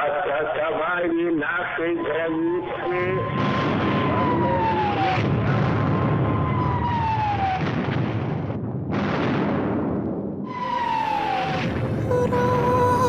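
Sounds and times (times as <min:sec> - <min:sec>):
rumble of blasts: 0:03.1 - 0:13.0
explosion: 0:03.2 - 0:12.4
falling bomb whistle: 0:10.5 - 0:13.0.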